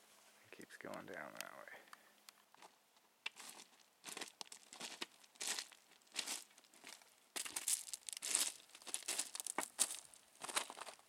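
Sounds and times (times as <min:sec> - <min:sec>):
footsteps crunching on gravel: 0:02.6 - 0:11.0.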